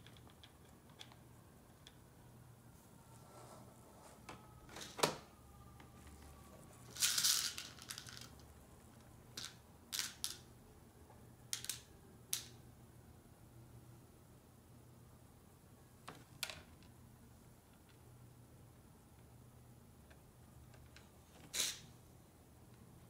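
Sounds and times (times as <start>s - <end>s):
plastic beads clicking: 6.9s - 8.4s, 9.3s - 10.5s.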